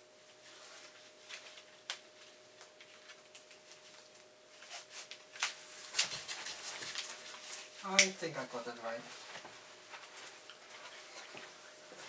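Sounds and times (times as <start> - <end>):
faint steady hum: 0.0 - 12.0
fabric rustling: 8.9 - 12.0.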